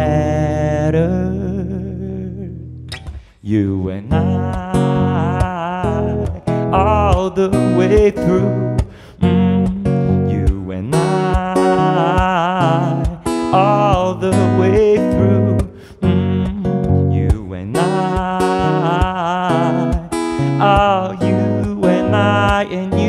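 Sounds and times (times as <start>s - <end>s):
man singing wordlessly: 0.0s - 2.7s, 3.4s - 23.0s
acoustic guitar playing: 0.0s - 23.0s.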